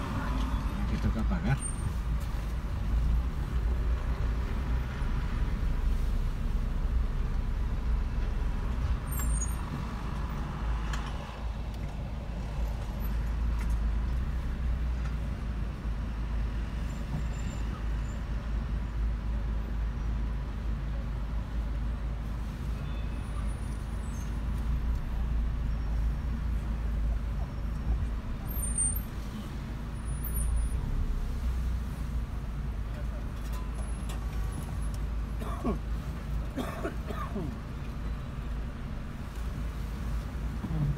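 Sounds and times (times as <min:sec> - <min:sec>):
car engine and tyres rumbling: 0:00.0 - 0:40.9.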